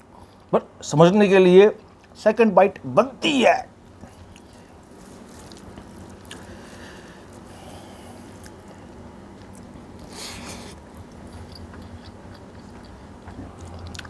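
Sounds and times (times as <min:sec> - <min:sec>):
hand squishing food: 0:03.9 - 0:08.8
eating a mouthful: 0:09.4 - 0:14.0.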